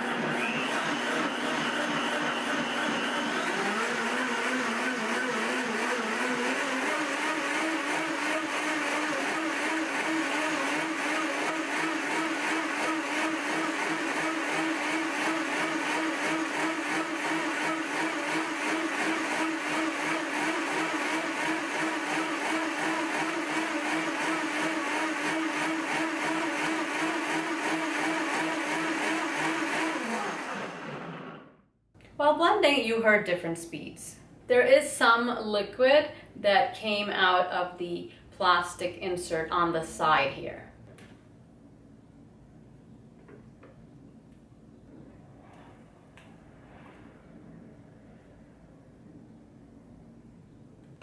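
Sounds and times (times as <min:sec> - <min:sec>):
blender motor running: 0:00.0 - 0:31.6.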